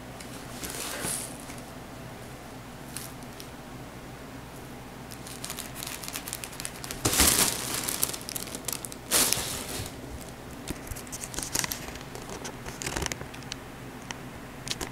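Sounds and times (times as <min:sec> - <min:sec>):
vinyl tunnel crinkling: 0:05.1 - 0:13.6.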